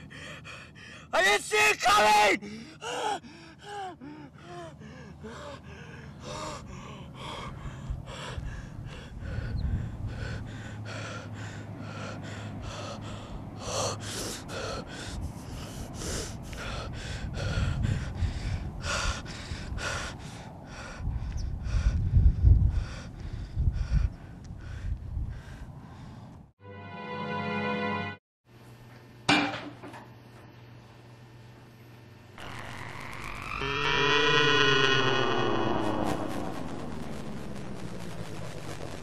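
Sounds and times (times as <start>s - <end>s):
man gasping for breath: 0.0s - 1.1s, 2.4s - 26.4s.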